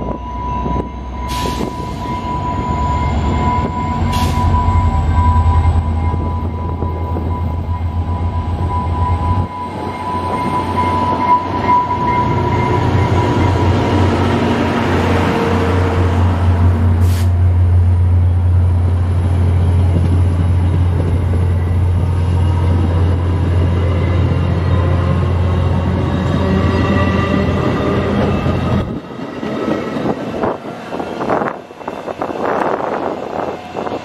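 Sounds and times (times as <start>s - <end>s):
high-pitched tone: 0.0s - 16.3s
train passing at speed: 0.0s - 34.0s.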